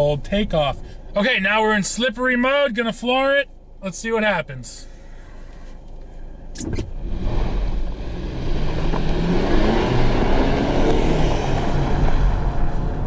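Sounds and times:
car engine accelerating: 0:06.5 - 0:13.0.

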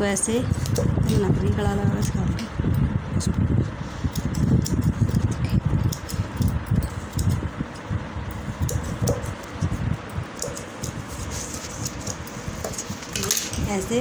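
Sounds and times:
shears snipping: 0:10.4 - 0:13.8
fabric rustling: 0:11.0 - 0:13.8.

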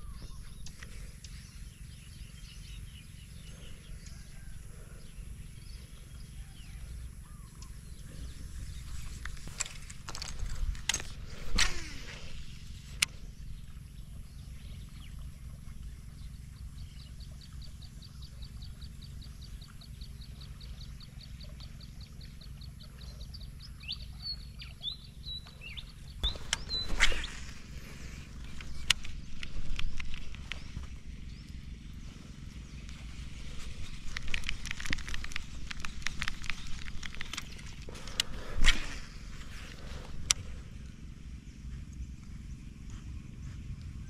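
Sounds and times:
bird calling with high ticks: 0:00.0 - 0:44.0
fishing rod cast swish: 0:10.8 - 0:12.5, 0:26.3 - 0:30.2.

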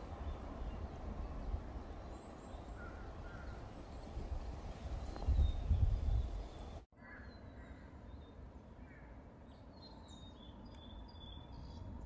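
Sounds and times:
birds chirping and calling: 0:00.2 - 0:04.2
wind rumble on microphone: 0:02.8 - 0:06.8.

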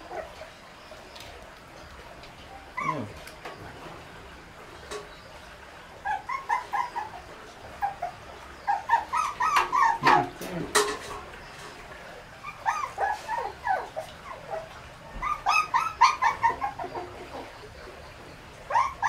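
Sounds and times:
puppy yelping: 0:00.0 - 0:00.6, 0:02.7 - 0:03.4, 0:05.9 - 0:10.4, 0:12.4 - 0:17.5, 0:18.7 - 0:19.0
puppy whining: 0:00.0 - 0:01.2, 0:02.5 - 0:03.8, 0:05.9 - 0:10.6, 0:12.2 - 0:17.7, 0:18.7 - 0:19.0.

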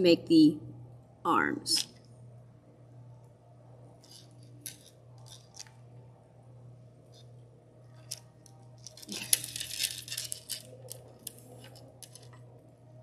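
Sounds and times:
plastic beads clicking: 0:04.0 - 0:05.7, 0:08.8 - 0:12.4.

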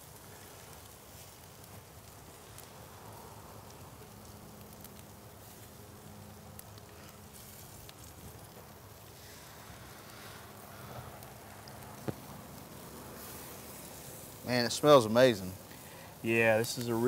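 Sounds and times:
faint steady hum: 0:00.0 - 0:17.0
steaks sizzling on a grill: 0:00.0 - 0:17.0.

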